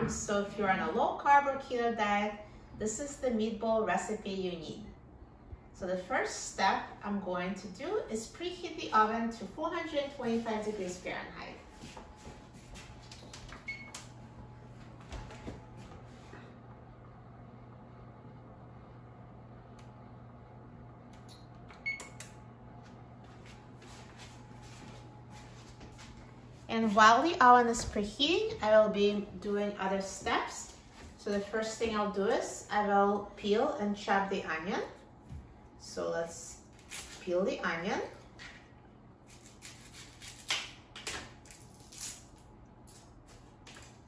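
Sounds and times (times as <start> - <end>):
steady low hum: 0.0 - 44.0
onion skin crackling: 39.2 - 44.0.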